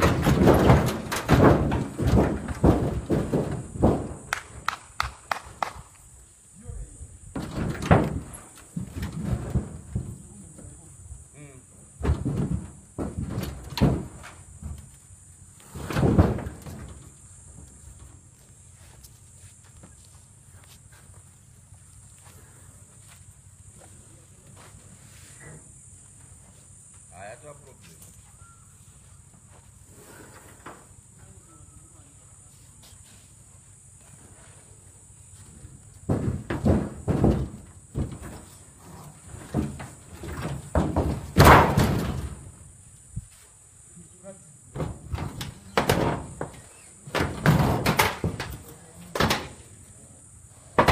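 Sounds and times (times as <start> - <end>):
loud metal crash: 0.0 - 4.3, 39.5 - 42.6
sheet metal banging and crunching: 0.0 - 5.7, 7.2 - 10.8, 11.9 - 15.0, 15.6 - 18.2, 35.4 - 42.7, 44.7 - 49.8.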